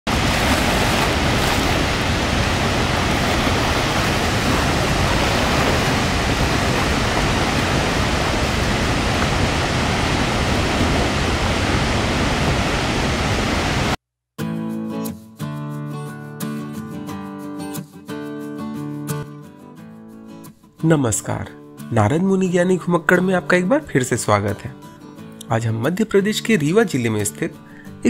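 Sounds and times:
waterfall rushing: 0.1s - 14.0s.

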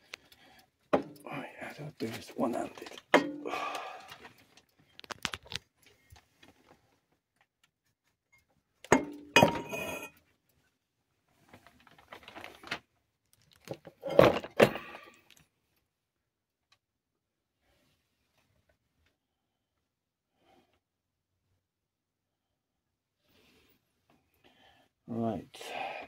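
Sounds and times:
metal knocks and clinks: 8.9s - 10.1s.

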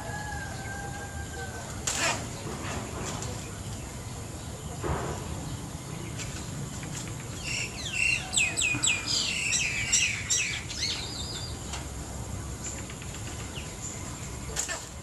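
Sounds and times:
bird chirping: 2.3s - 15.0s
bird trill: 7.4s - 11.6s.

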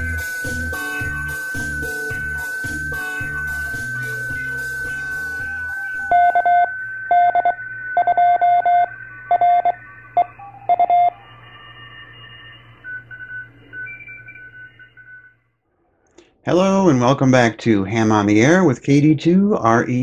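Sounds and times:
intro jingle: 0.0s - 15.2s
morse code beeps: 0.0s - 15.4s
faint high-pitched beeps: 0.0s - 15.5s.

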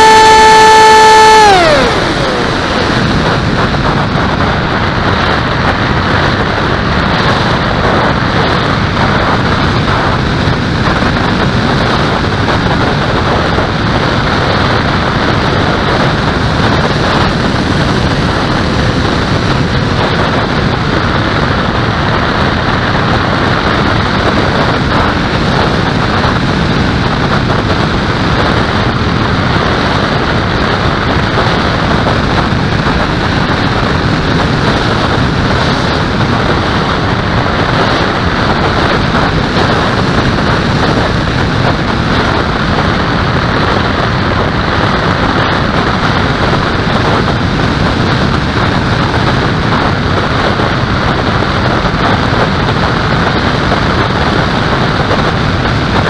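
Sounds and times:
motor whine: 0.0s - 3.8s
wind rushing over camera: 0.0s - 56.0s.

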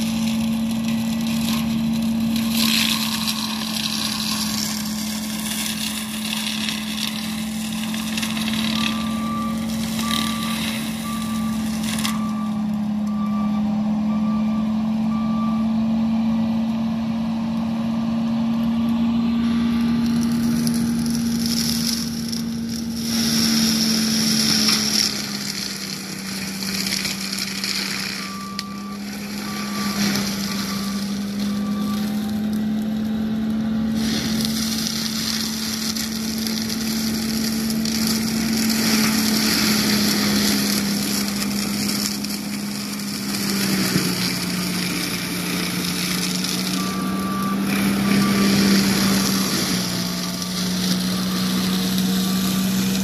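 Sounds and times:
loader engine and mulcher drone: 0.0s - 53.0s
backup alarm beeping: 46.8s - 52.9s.

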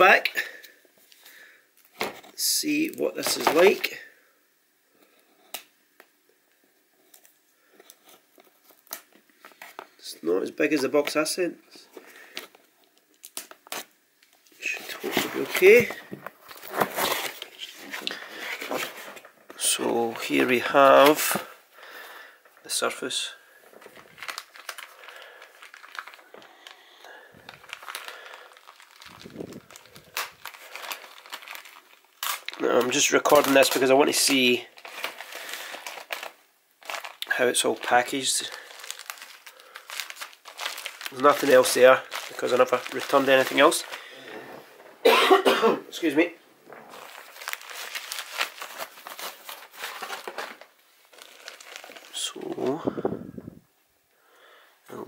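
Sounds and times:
plastic packaging crinkling: 11.9s - 45.0s, 45.9s - 53.2s.

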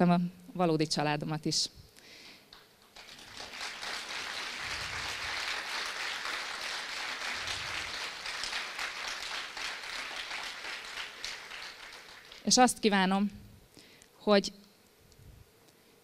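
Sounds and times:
audience applauding: 2.6s - 12.6s.

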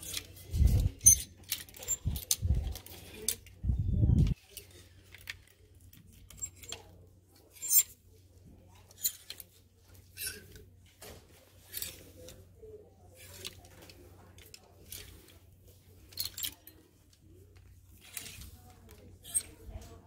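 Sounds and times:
plastic hangers clacking on rack: 0.0s - 3.6s, 8.8s - 20.0s.

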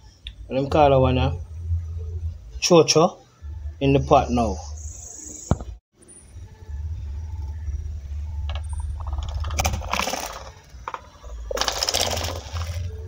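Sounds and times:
vegetables clattering against metal bowl: 9.0s - 12.9s.

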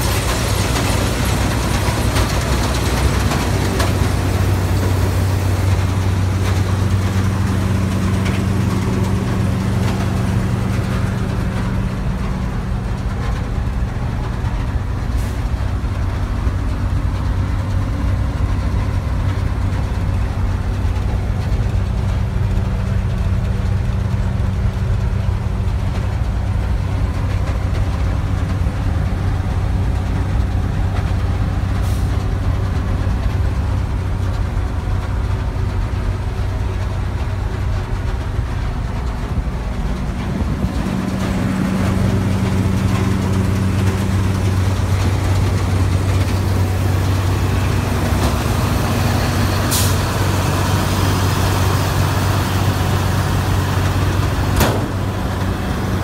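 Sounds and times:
heavy machine engine humming: 0.0s - 56.0s
hiss: 49.3s - 54.6s.

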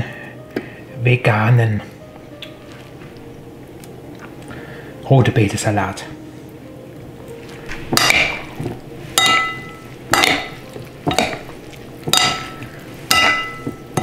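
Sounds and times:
metal spoon clinking ceramic bowl: 9.2s - 11.4s, 12.1s - 14.0s.

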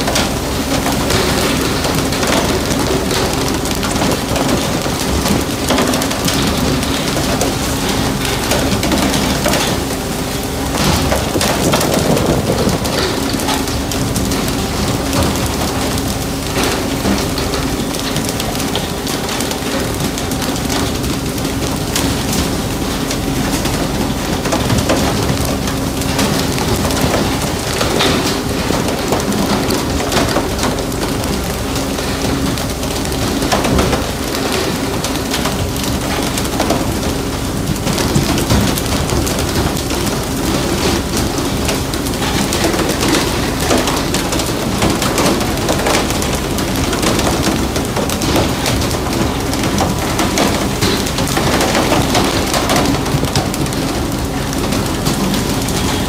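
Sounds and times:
ship engine hum: 0.0s - 56.0s
knocks and clatters on deck: 10.7s - 19.5s.

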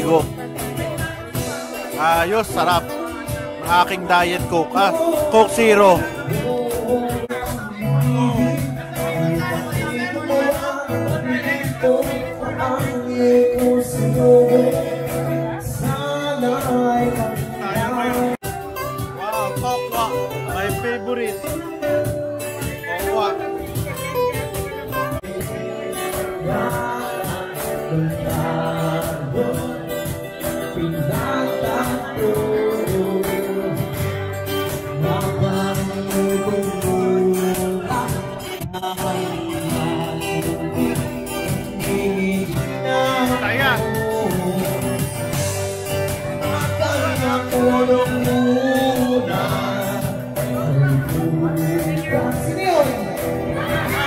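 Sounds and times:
person singing: 0.0s - 19.2s, 21.4s - 54.0s
cajon beat: 0.0s - 54.0s
live band playing: 0.0s - 54.0s
strummed acoustic guitars: 0.0s - 54.0s.

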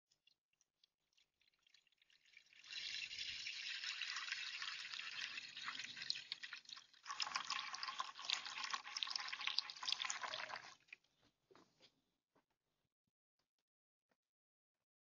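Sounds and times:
water pouring into a birdbath: 1.0s - 11.0s.

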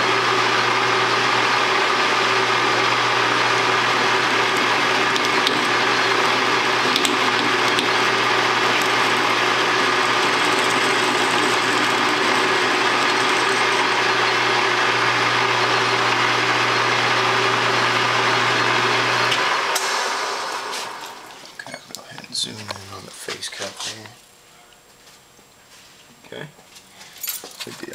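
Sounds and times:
lathe winding down: 0.0s - 21.5s
metal lathe humming: 0.0s - 21.6s.

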